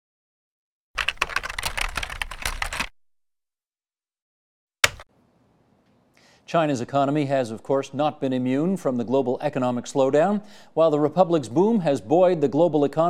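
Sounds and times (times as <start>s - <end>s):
rapid clatter of clicks: 1.0s - 2.9s
single sharp click: 4.8s - 5.1s.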